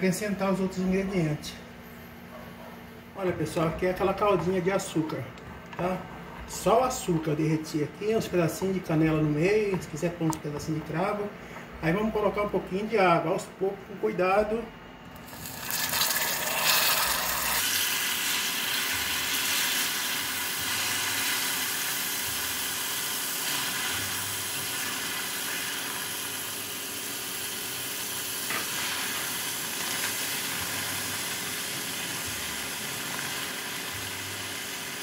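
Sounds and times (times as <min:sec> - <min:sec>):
hot caramel hissing and sizzling: 0:15.2 - 0:35.0
water pouring: 0:15.3 - 0:20.0.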